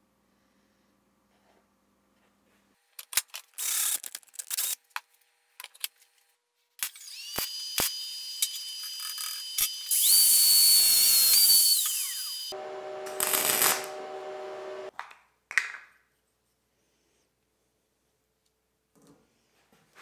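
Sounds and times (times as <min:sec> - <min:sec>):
small power tool motor: 0:06.8 - 0:14.9
high electric whine: 0:09.4 - 0:14.9.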